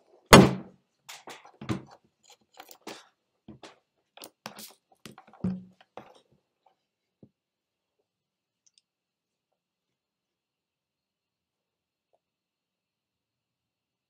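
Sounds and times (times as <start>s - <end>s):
clicks and scrapes: 1.1s - 6.8s.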